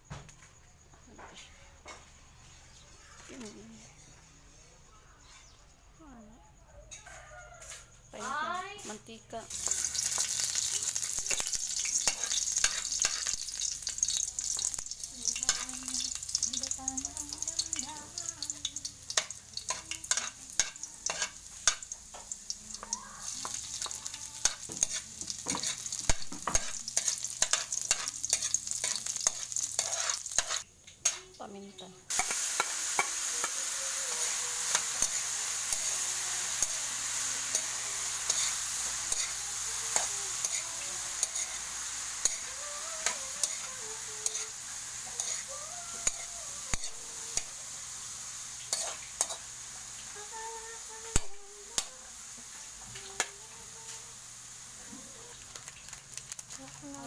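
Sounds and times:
spatula scraping a wok: 3.7 - 5.7, 9.5 - 17.7, 19.0 - 22.4, 23.2 - 31.3, 32.1 - 49.7
food sizzling in oil: 7.6 - 57.0.

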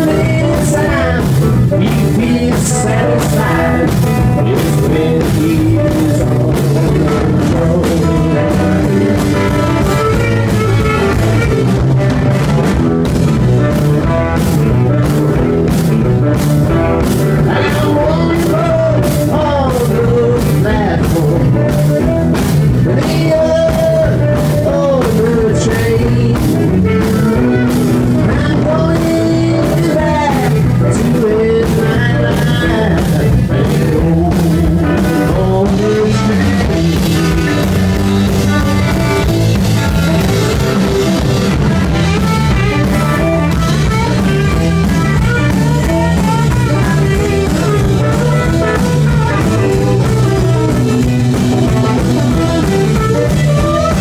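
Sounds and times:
live blues-rock band playing: 0.0 - 54.0
steady drum beat: 0.0 - 54.0
tenor saxophone: 8.0 - 12.6, 25.8 - 29.3, 36.2 - 54.0.

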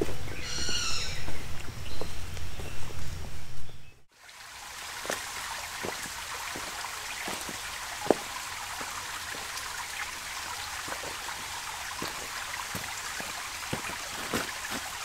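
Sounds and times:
stream trickling over rocks: 4.1 - 15.0.

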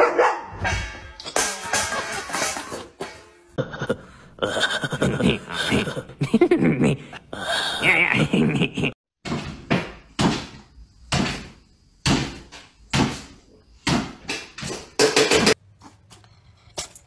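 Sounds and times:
sharp knocks and bangs: 9.2 - 15.6.

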